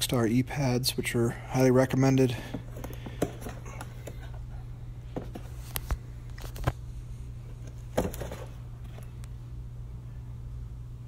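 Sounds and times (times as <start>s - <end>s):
steady low hum: 0.0s - 11.0s
handling clicks and knocks: 2.4s - 4.4s.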